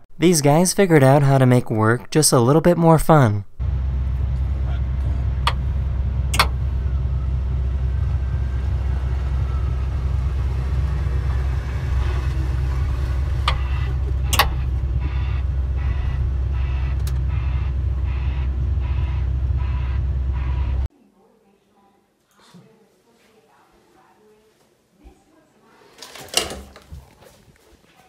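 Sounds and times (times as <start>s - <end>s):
diesel machinery drone: 3.6s - 20.9s
sharp knocks and clicks: 5.4s - 5.7s, 6.3s - 6.6s, 13.4s - 15.2s
faint ticking: 7.8s - 20.9s.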